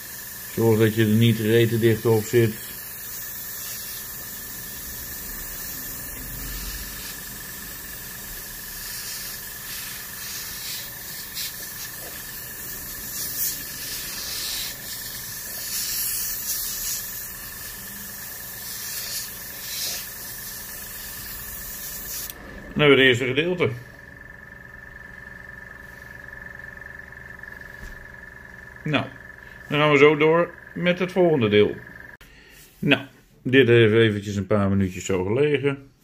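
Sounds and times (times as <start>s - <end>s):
spray surges: 0.0s - 22.8s
airbrush hissing: 0.0s - 23.1s.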